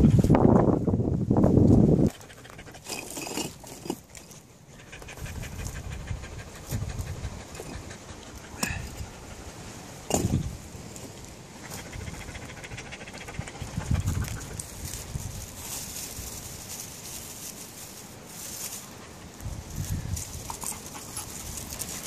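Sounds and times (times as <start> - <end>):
dog panting: 2.1 - 2.9, 4.7 - 9.6, 11.6 - 14.8, 20.5 - 22.0
rocks knocking together: 10.1 - 11.2.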